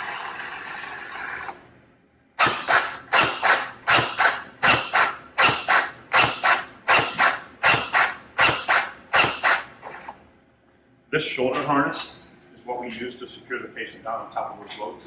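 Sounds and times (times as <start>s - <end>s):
mechanical compression motor sounds: 0.0s - 1.7s.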